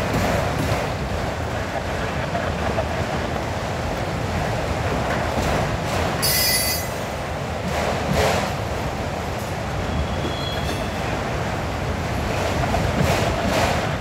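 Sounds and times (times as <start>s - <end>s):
train wheels rumbling on rail: 0.0s - 14.0s
high-pitched wheel squeal: 6.2s - 6.9s.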